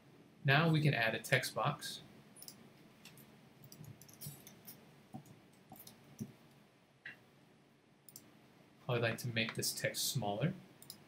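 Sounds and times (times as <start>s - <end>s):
computer keyboard clicks: 3.6s - 4.6s.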